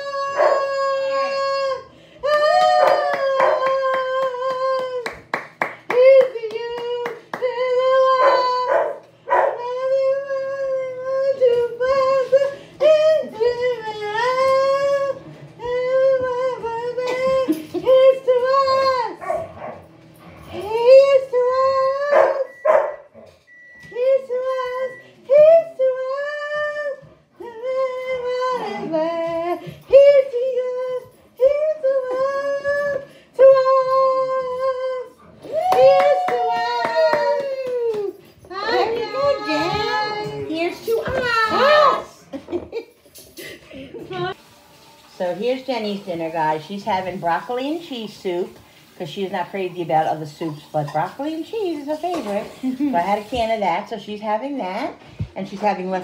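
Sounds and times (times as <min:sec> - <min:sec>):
woman singing unaccompanied: 0:05.9 - 0:19.2, 0:23.9 - 0:36.6.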